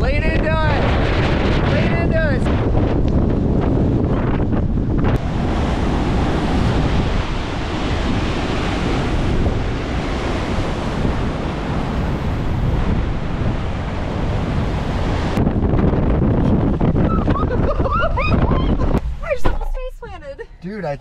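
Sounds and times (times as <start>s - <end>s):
wind buffeting microphone: 0.0s - 21.0s
surf washing around stairs: 5.2s - 15.4s.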